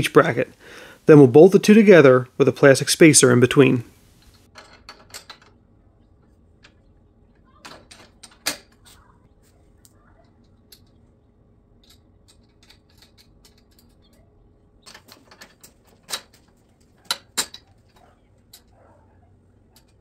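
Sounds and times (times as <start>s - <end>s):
metal clicks of bolts and nuts: 4.2s - 5.6s, 11.8s - 14.2s, 14.8s - 18.8s, 19.6s - 20.0s.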